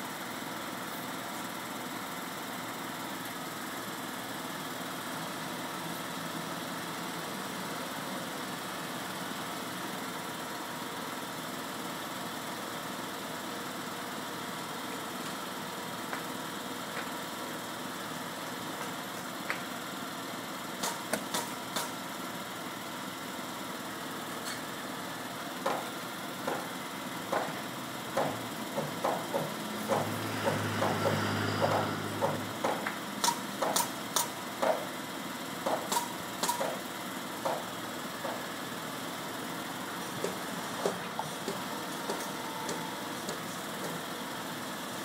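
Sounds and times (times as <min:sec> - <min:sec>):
truck engine running: 0:00.0 - 0:45.0
hammer driving nails: 0:28.2 - 0:34.9, 0:35.6 - 0:36.8.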